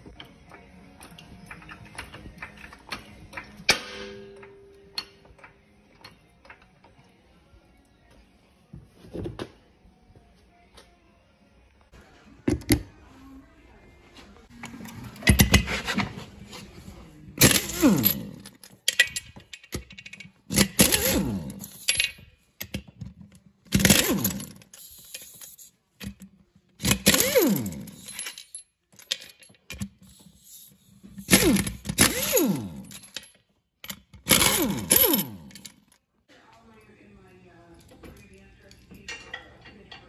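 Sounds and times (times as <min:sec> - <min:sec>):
pneumatic impact wrench bursts: 0:17.4 - 0:18.4, 0:20.5 - 0:22.0, 0:23.7 - 0:25.7, 0:26.8 - 0:28.3, 0:30.0 - 0:33.0, 0:34.2 - 0:35.6.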